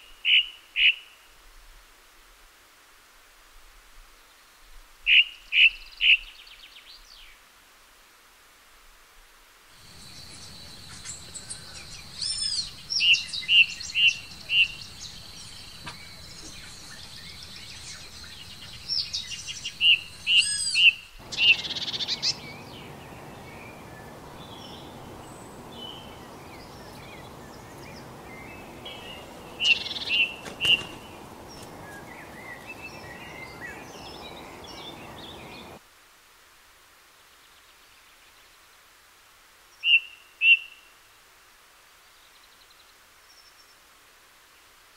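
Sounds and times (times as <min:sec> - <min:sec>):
soft bird chirps: 0:09.8 - 0:35.8
songbird whistled notes: 0:10.0 - 0:35.7.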